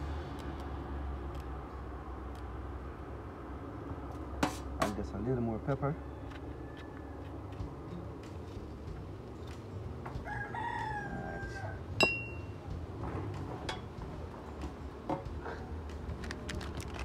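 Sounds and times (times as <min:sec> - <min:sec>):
rooster crowing: 0:05.8 - 0:07.7, 0:10.1 - 0:11.9
metallic clink with ring: 0:12.0 - 0:12.6.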